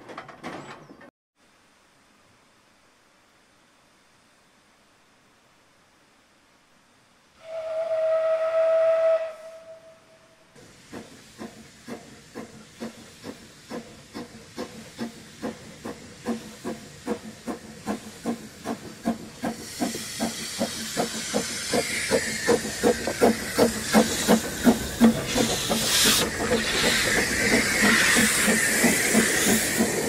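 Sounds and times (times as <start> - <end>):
steam whistle blast: 7.4 - 10.5
steam hissing: 7.4 - 30.0
steam locomotive chuffing: 10.6 - 30.0.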